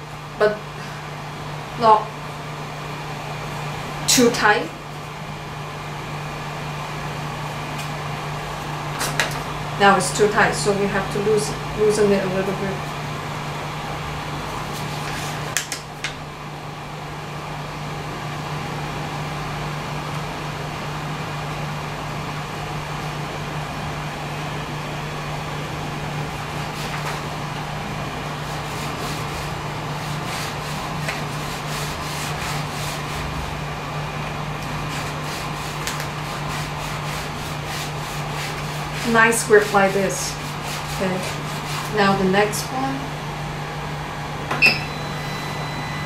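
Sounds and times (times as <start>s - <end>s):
printer fan hum: 0.0s - 46.0s.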